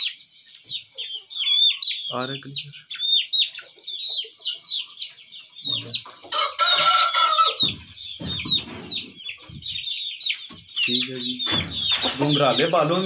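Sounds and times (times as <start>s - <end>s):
small birds cheeping: 0.0s - 13.0s
rooster crowing: 6.4s - 7.6s.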